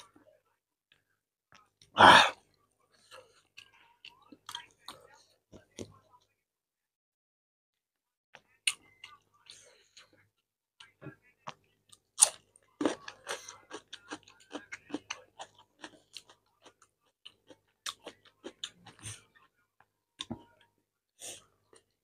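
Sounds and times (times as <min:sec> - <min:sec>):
soft chewing: 0:00.0 - 0:06.4, 0:08.3 - 0:22.0
crunchy chewing of cucumber: 0:12.2 - 0:19.0.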